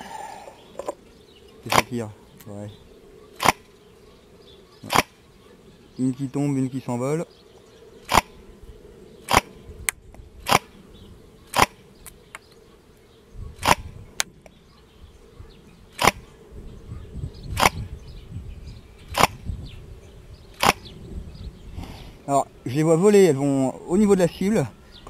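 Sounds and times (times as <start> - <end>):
airsoft rifle firing single shots: 3.4 - 3.7, 4.9 - 5.2, 9.2 - 9.6, 10.4 - 10.7, 11.5 - 11.8, 16.0 - 16.2, 20.6 - 20.9.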